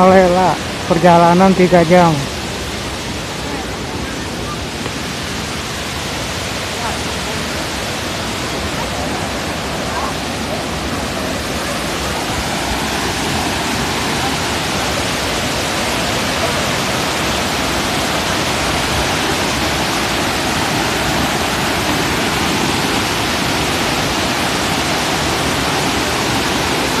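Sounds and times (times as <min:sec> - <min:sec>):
waterfall rushing: 0:00.0 - 0:27.0.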